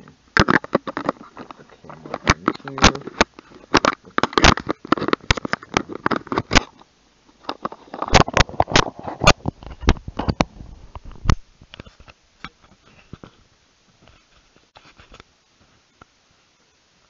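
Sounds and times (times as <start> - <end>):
camera handling clicks and rubbing: 0.4 - 6.8, 7.4 - 10.4.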